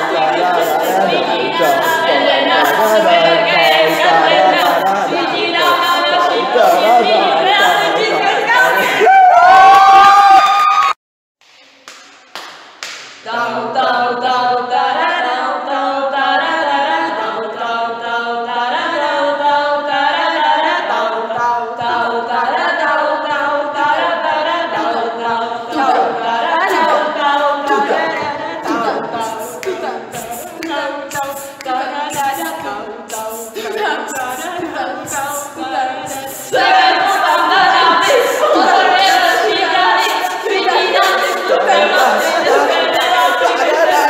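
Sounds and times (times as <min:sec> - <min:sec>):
voices singing in harmony: 0:00.0 - 0:10.4, 0:13.2 - 0:44.0.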